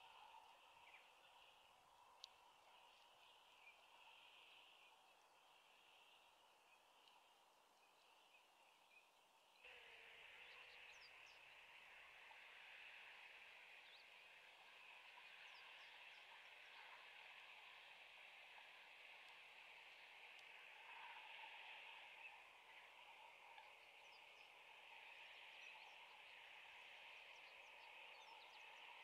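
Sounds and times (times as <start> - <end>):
soft outdoor hiss: 0.0 - 29.0.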